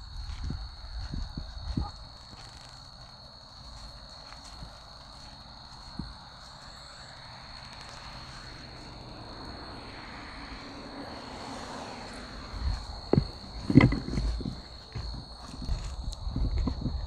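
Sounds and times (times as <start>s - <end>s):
high-pitched insect drone: 0.0s - 17.0s
distant vehicle engine passing: 5.4s - 15.4s.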